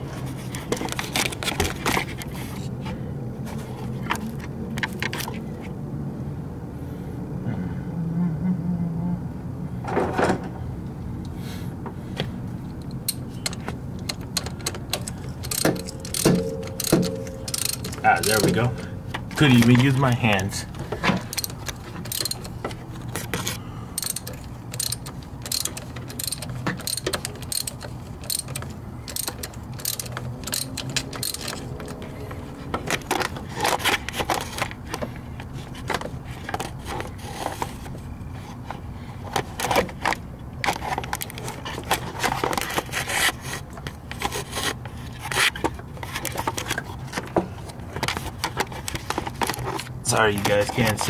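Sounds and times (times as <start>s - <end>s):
steady low hum: 0.0s - 43.0s
ratchet wrench clicking: 13.1s - 18.6s, 21.3s - 22.6s, 24.0s - 32.0s
metal scraping: 14.8s - 20.4s.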